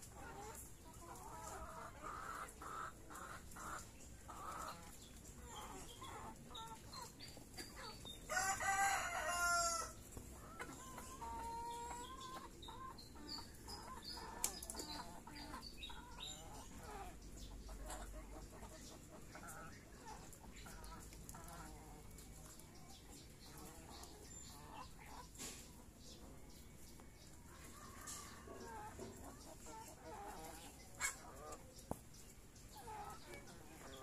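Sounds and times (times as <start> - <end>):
chickens clucking: 0.0 - 34.0
rooster crowing: 8.3 - 10.0.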